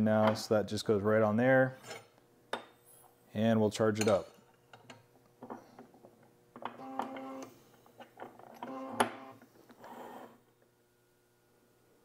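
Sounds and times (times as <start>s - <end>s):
powder dispenser motor whirring: 6.8s - 7.6s, 8.6s - 10.4s.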